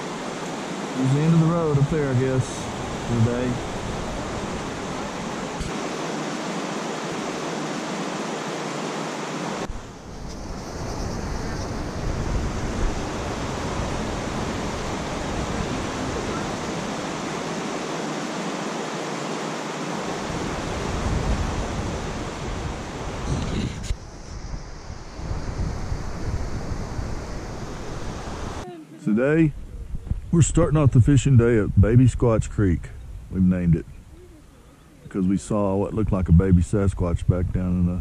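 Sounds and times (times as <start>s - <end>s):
creek rushing over boulders: 0.0s - 10.0s, 11.2s - 23.6s
wind rumble on microphone: 1.7s - 5.8s, 9.7s - 17.8s, 20.0s - 28.6s, 29.4s - 34.6s.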